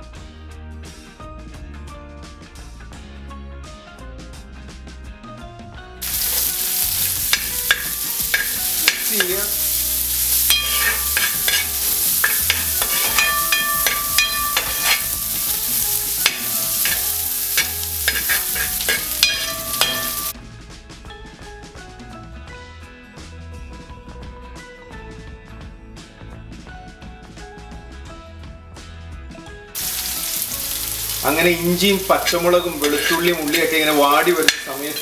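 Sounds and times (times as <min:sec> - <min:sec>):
metal spoon scraping a wok: 0:06.0 - 0:20.3, 0:29.8 - 0:35.0
vegetables sizzling in hot oil: 0:06.0 - 0:20.4, 0:29.8 - 0:35.0.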